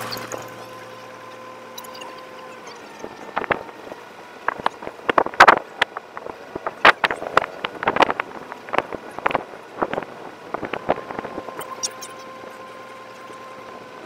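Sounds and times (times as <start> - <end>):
wind buffeting microphone: 2.9 - 13.0.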